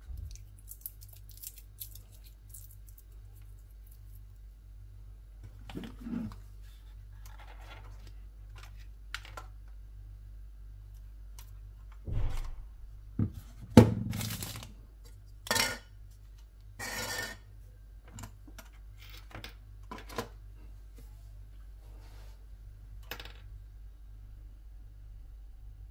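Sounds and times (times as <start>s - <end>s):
hands handling packaging: 14.1s - 14.7s.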